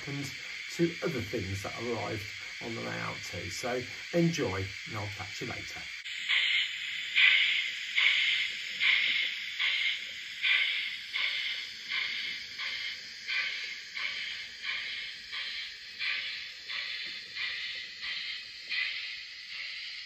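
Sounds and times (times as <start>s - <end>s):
model steam locomotive chuffs: 0.0s - 20.0s.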